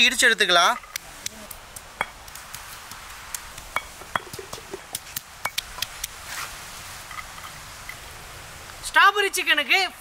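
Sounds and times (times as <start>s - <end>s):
pestle pounding in stone mortar: 2.0s - 5.9s.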